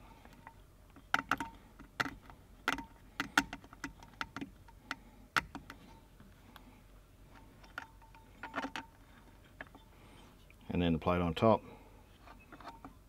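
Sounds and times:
small metal clicks and taps: 0:00.2 - 0:05.8.

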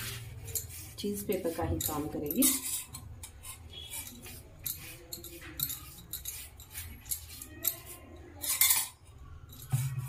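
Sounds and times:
pastry brush stroking paper: 0:00.0 - 0:08.4, 0:09.6 - 0:10.0
brush scrape: 0:00.0 - 0:08.7, 0:09.6 - 0:10.0
brush clinking in cup: 0:00.1 - 0:10.0.

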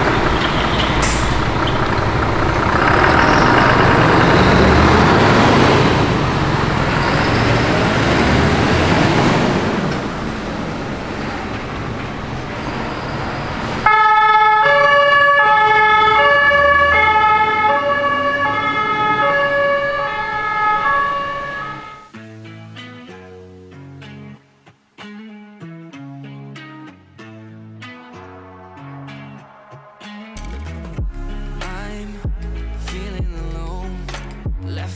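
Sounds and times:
two-tone emergency siren: 0:00.0 - 0:09.2, 0:12.8 - 0:22.1
engine and road noise: 0:00.0 - 0:22.9, 0:27.0 - 0:34.9.

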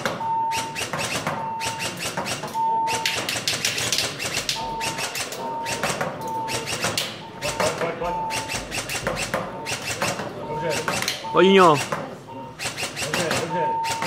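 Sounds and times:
short electronic beep: 0:10.4 - 0:12.6, 0:13.4 - 0:14.0.

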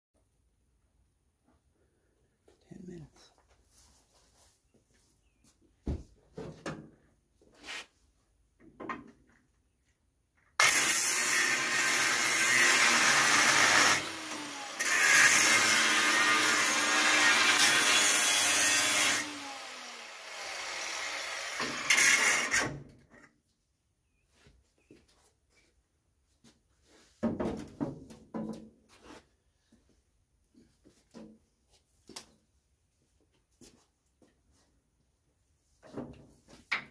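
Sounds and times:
angle grinder on sheet steel: 0:10.6 - 0:22.8.

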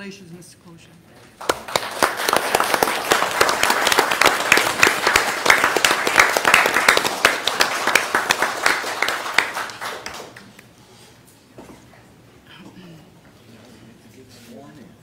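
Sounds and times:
small group applauding: 0:01.3 - 0:10.8.

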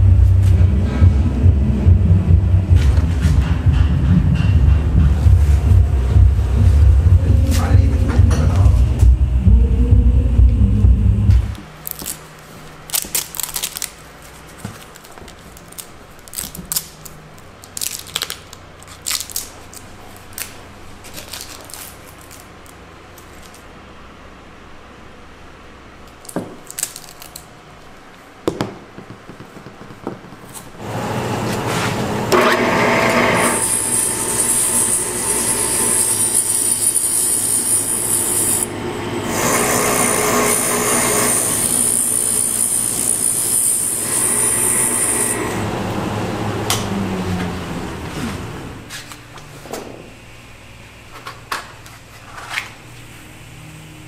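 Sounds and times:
hands handling wrapped object: 0:11.8 - 0:23.6
bench grinder motor whining: 0:30.8 - 0:48.8.

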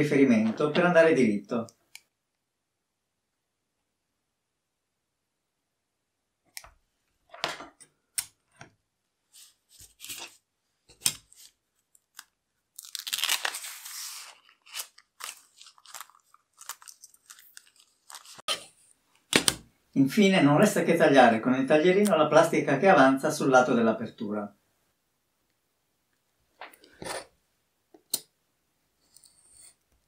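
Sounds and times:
plastic film crinkling: 0:11.3 - 0:18.5.

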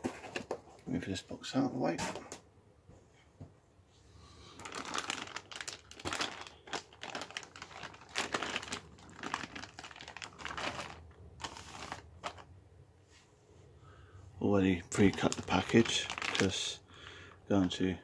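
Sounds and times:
plastic bags crinkling: 0:04.6 - 0:12.5, 0:14.8 - 0:16.8.

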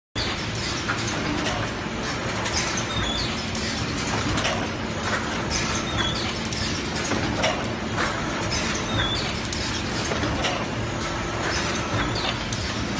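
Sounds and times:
machine hum and clatter: 0:00.2 - 0:12.9.

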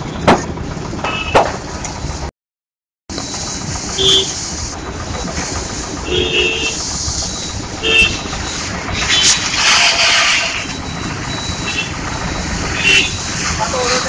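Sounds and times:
road traffic: 0:00.0 - 0:02.3, 0:03.1 - 0:14.0
vehicle horn toots: 0:01.0 - 0:01.5, 0:04.0 - 0:04.4, 0:06.0 - 0:06.8, 0:07.8 - 0:08.3, 0:12.7 - 0:13.2
hissing burst: 0:03.3 - 0:10.8.

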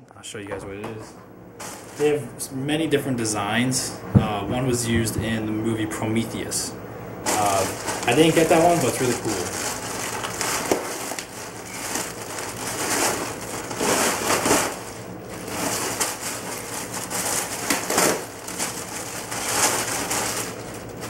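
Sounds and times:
plastic bag crinkling: 0:01.6 - 0:02.2, 0:07.2 - 0:21.0.

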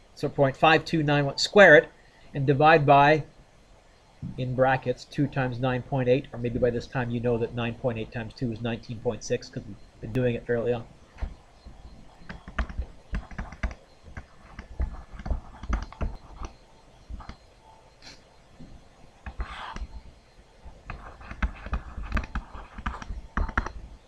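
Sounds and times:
calculator keys clicking: 0:12.2 - 0:16.5, 0:20.9 - 0:23.8.

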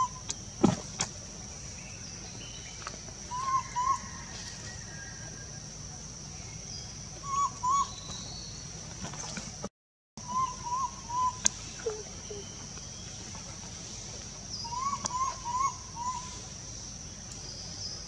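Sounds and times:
baby monkey whimpering coo calls: 0:10.4 - 0:12.5.

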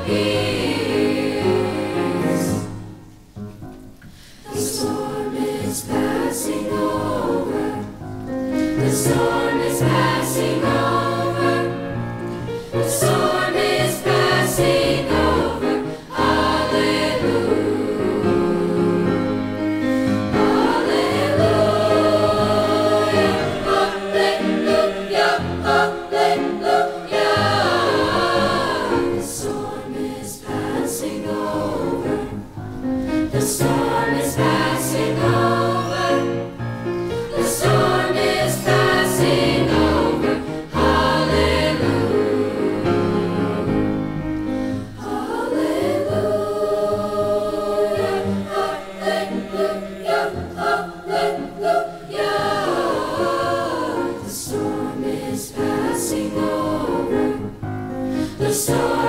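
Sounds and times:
youth choir singing gospel: 0:00.0 - 0:03.1, 0:04.2 - 0:59.0
piano accompaniment: 0:00.0 - 0:59.0.

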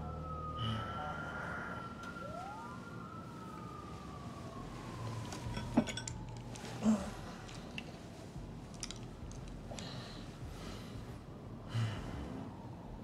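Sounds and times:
sirens wailing: 0:00.0 - 0:10.5, 0:11.3 - 0:13.0.

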